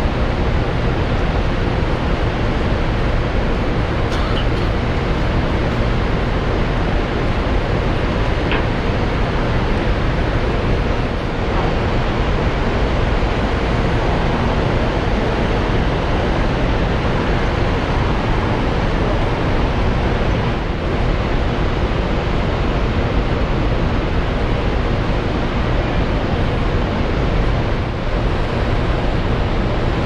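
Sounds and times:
ship engines rumbling: 0.0s - 23.4s.

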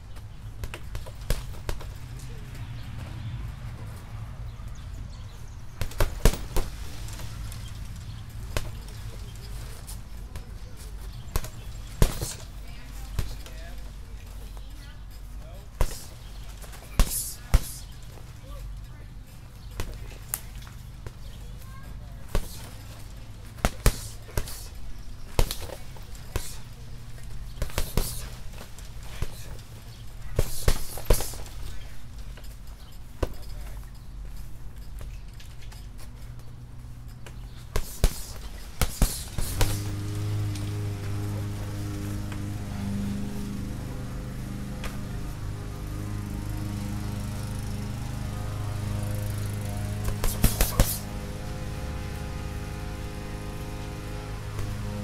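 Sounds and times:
steady low hum: 0.0s - 55.0s
punches hitting punching bag: 0.6s - 2.0s, 5.7s - 7.3s, 8.4s - 10.5s, 11.2s - 13.6s, 15.8s - 17.9s, 22.2s - 26.8s, 27.5s - 29.7s, 30.3s - 31.6s, 37.7s - 40.0s, 49.7s - 52.4s, 54.2s - 55.0s.

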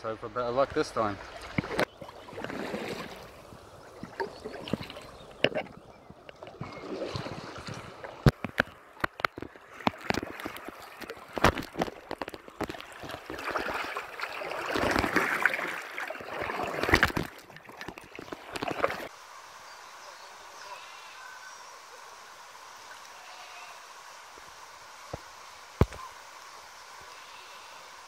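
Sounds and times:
paddle splashes: 0.6s - 19.1s
river water rushing: 0.8s - 5.8s, 6.4s - 19.6s.

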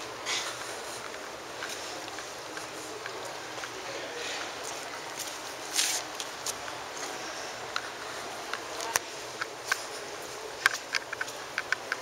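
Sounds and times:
footsteps on hard pavement: 0.0s - 7.2s.

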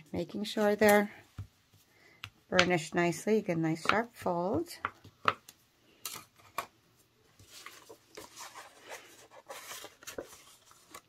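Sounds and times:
card stock rubbing and rustling: 7.4s - 11.0s.

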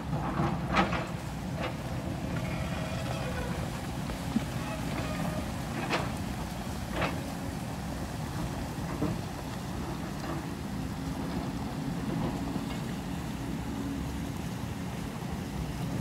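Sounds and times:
distant diesel engine rumbling: 0.1s - 12.7s.

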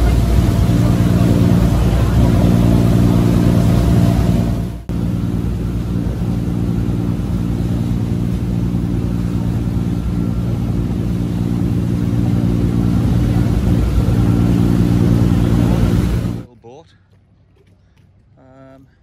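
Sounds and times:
water and wind hiss: 0.0s - 16.4s
boat engine droning: 0.0s - 19.0s.

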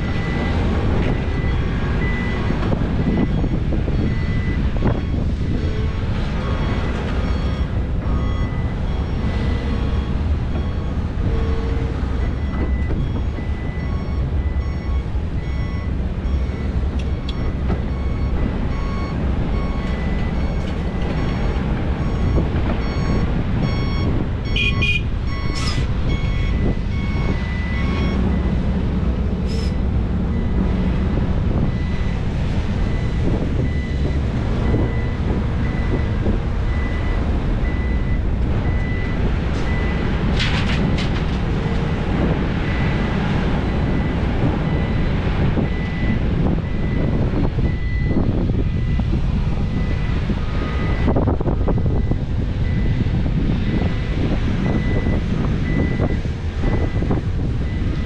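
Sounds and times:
reversing alarm beeping: 0.0s - 28.6s, 29.5s - 30.6s, 31.6s - 40.0s, 42.6s - 58.0s
heavy diesel machinery rumbling: 0.0s - 58.0s
high-pitched squeaks: 25.4s - 25.9s.

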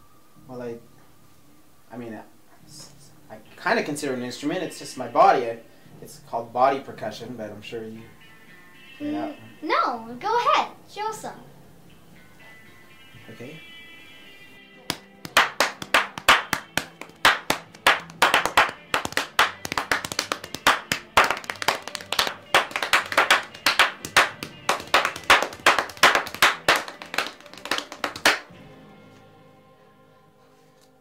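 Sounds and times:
hand slaps on chest: 14.8s - 28.5s
rhythmic hand claps: 14.8s - 28.5s.

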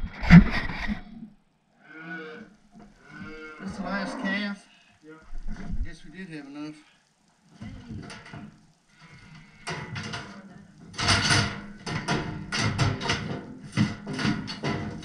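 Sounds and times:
metal chute clanking and rattling: 9.7s - 15.0s.

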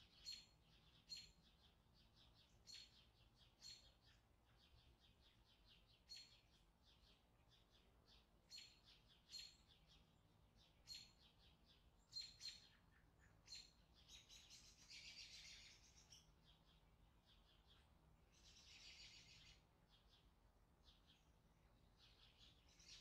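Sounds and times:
faint bird chirps: 0.0s - 23.0s.

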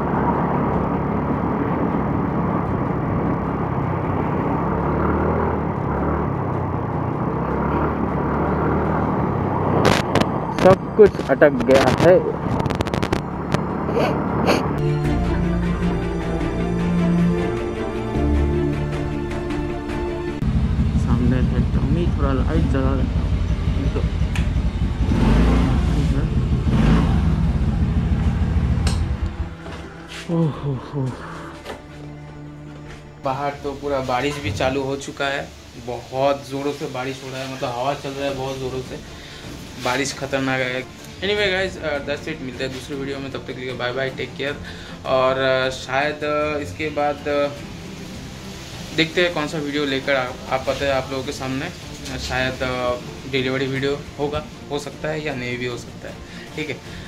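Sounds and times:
wind and road noise: 0.0s - 14.9s, 15.6s - 57.0s
scooter engine droning: 0.0s - 17.4s, 19.6s - 33.2s.

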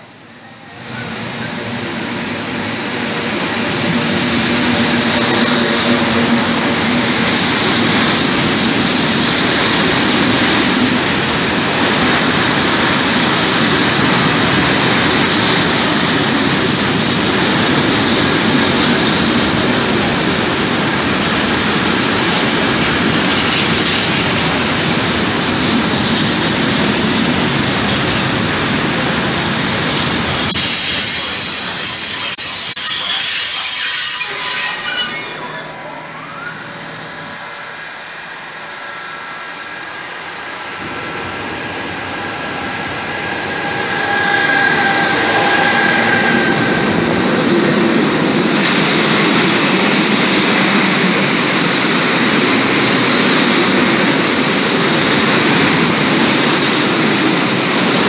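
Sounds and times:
train wheels rumbling on rail: 0.0s - 36.0s, 36.6s - 58.0s
locomotive humming: 19.2s - 58.0s
wheel squeal: 28.5s - 36.5s.

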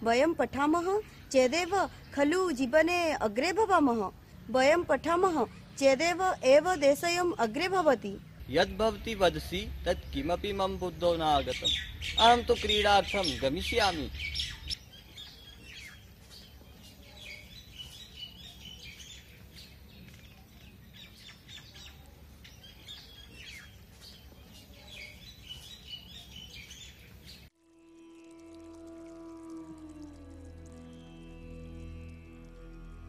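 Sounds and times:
songbirds chirping: 0.0s - 33.0s
low held musical tone: 27.6s - 33.0s.

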